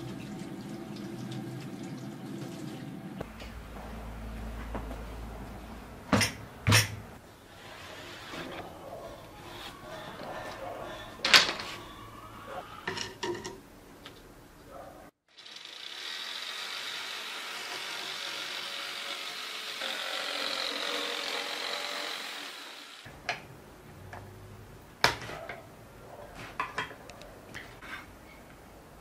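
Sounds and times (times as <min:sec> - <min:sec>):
glass jars and dishes clinking: 0:12.8 - 0:13.6
power tool cutting: 0:15.3 - 0:23.1.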